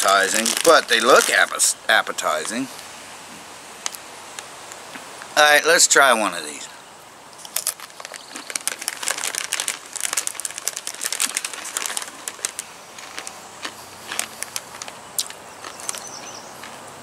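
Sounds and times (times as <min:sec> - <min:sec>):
chip bag crinkling: 0:00.0 - 0:02.7, 0:07.4 - 0:16.7.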